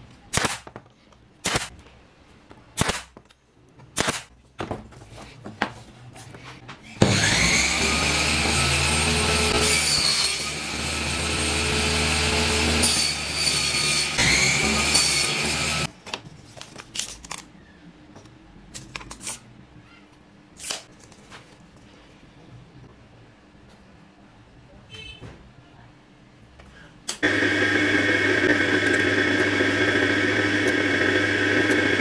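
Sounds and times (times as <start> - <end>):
pneumatic nailer snaps: 0.3 - 0.7, 1.4 - 1.7, 2.8 - 3.1, 4.0 - 4.3.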